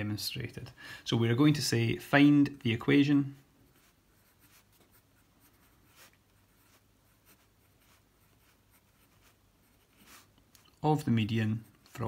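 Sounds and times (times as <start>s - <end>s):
pen scratching on paper: 3.7s - 10.8s.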